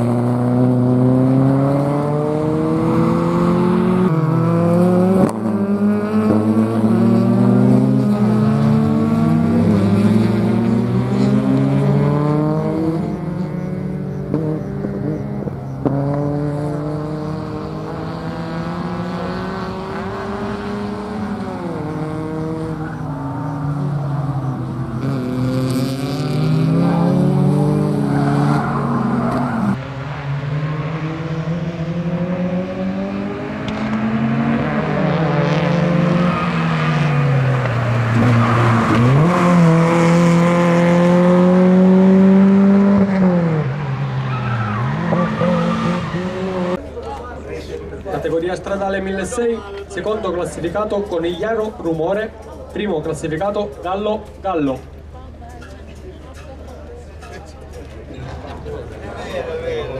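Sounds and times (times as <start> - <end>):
car engine revving hard: 0.0 - 46.8.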